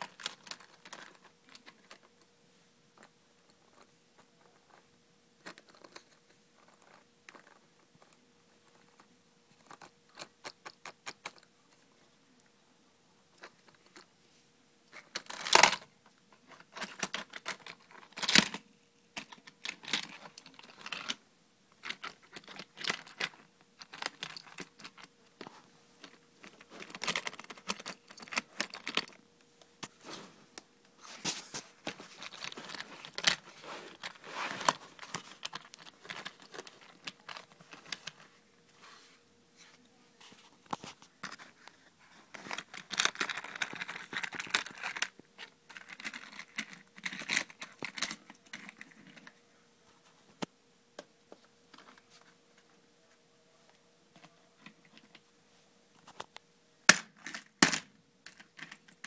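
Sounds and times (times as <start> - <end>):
plastic toy parts clicking and rattling: 0.0 - 2.2, 5.4 - 11.5, 15.0 - 15.9, 16.5 - 18.6, 19.2 - 21.2, 21.8 - 25.1, 26.0 - 29.2, 31.9 - 38.3, 41.2 - 49.3, 56.9 - 59.0.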